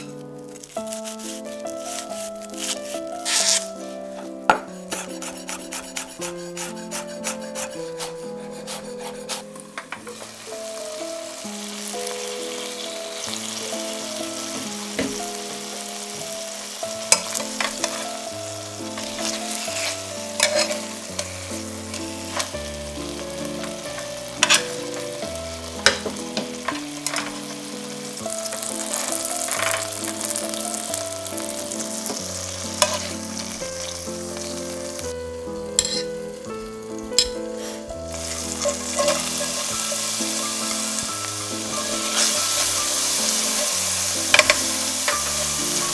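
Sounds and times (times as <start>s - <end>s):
chicken sizzling in a pan: 0.0s - 45.9s
utensils clicking against metal pan: 17.1s - 18.1s, 19.0s - 22.6s, 23.6s - 27.6s, 32.1s - 33.4s, 35.7s - 36.2s, 37.2s - 37.4s, 38.1s - 45.9s.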